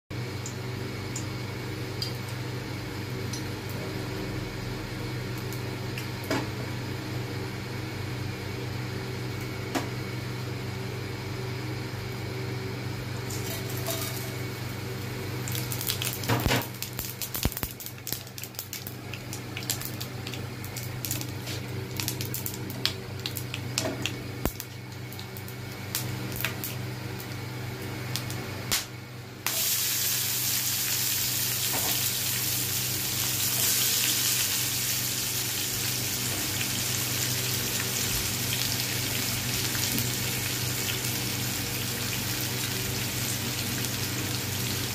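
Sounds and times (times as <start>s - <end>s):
steady low hum: 0.2s - 44.9s
spices sizzling and popping in oil: 13.3s - 44.9s.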